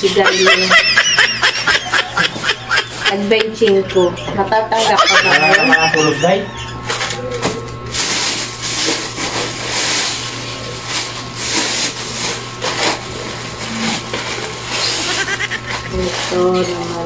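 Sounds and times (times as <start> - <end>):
low electrical hum: 0.0 - 17.0
plastic packaging crinkling: 7.8 - 17.0.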